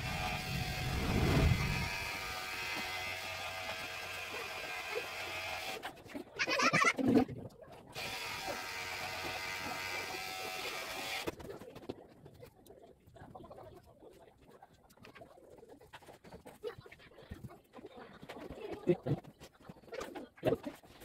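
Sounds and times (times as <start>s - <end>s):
electric hair clipper buzzing: 0.0s - 5.8s, 8.0s - 11.3s.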